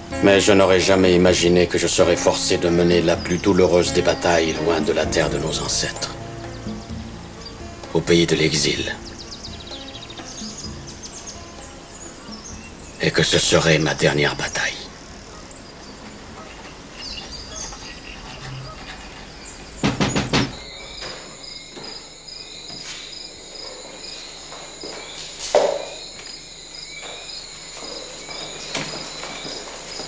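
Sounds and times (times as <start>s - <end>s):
crickets chirping: 0.0s - 30.0s
loud knock: 19.8s - 21.9s, 25.5s - 26.0s.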